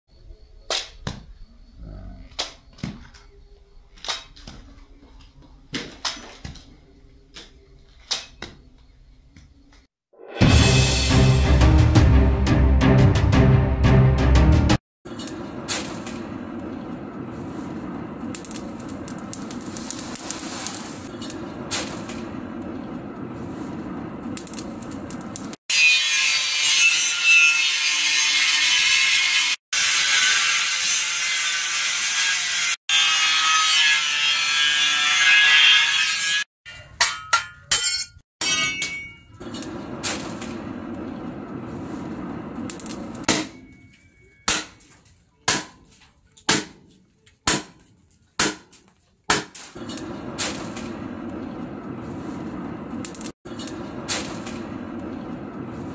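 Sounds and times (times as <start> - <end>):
angle grinder cutting metal: 25.7 - 36.5.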